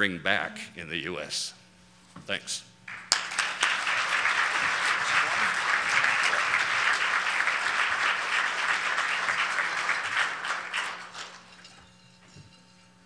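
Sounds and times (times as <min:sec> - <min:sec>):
audience applauding: 0:02.9 - 0:11.6.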